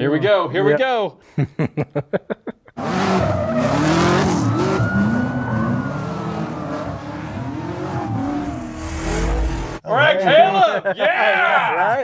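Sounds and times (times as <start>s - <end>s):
engine revving hard: 2.8s - 9.8s
tire squeal: 3.0s - 9.8s.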